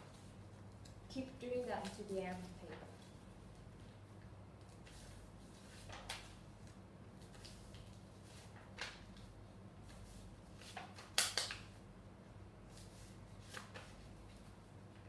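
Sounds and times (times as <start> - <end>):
faint steady hum: 0.0 - 15.0
paper crinkling as folded: 4.6 - 11.7, 12.7 - 14.5.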